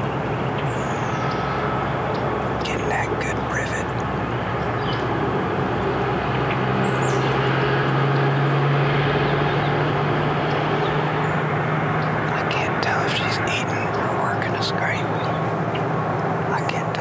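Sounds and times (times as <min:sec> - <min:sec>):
distant engine droning: 0:00.0 - 0:17.0.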